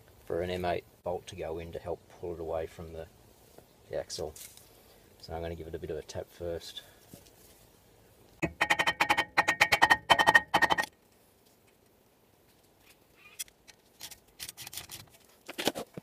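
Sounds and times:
hammer striking ringing steel disc: 0:08.4 - 0:10.9.

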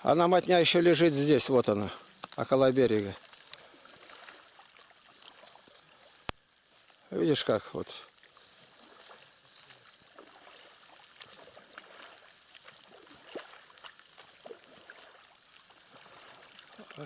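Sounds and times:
quiet outdoor hiss: 0:00.0 - 0:17.0
light water ticks: 0:00.1 - 0:17.0
small water splashes: 0:00.1 - 0:17.0.

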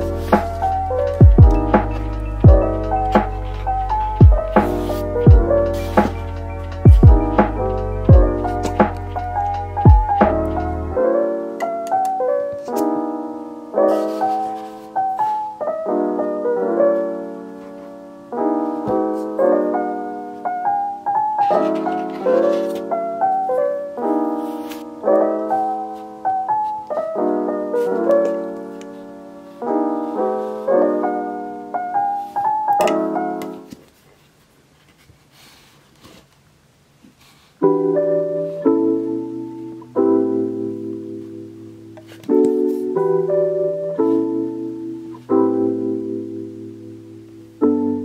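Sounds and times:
soft piano music: 0:00.0 - 0:33.9, 0:37.6 - 0:48.0.

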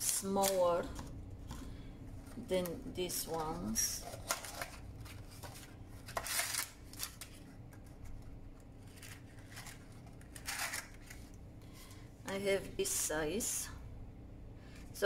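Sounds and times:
paper baking cups rustling: 0:00.0 - 0:12.0.

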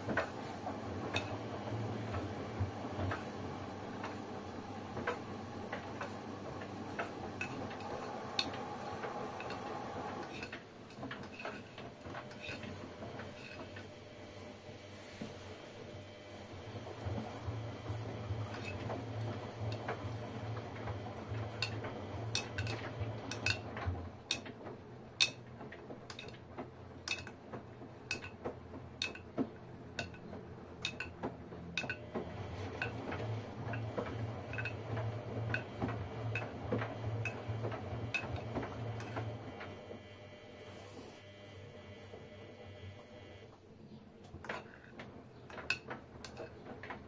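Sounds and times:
washing machine motor hum: 0:00.0 - 0:47.0
clinks from tumbling laundry: 0:01.0 - 0:03.3, 0:04.9 - 0:13.9, 0:18.4 - 0:39.3, 0:44.3 - 0:47.0.

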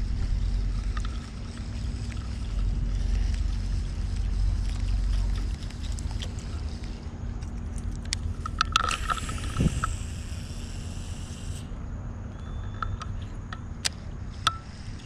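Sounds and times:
wind rumbling on microphone: 0:00.0 - 0:10.6
reel spool whirring: 0:00.0 - 0:11.8
fishing reel clicks: 0:08.1 - 0:11.7.

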